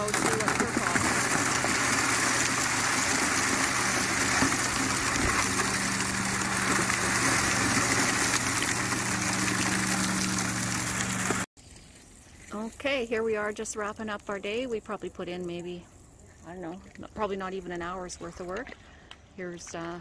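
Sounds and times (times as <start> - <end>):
water rushing through sluice: 0.0 - 11.5
low pump hum: 4.5 - 11.5.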